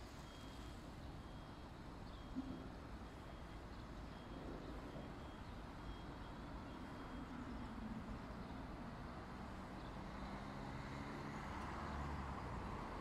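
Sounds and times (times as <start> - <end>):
faint high beeps: 0.0 - 8.2.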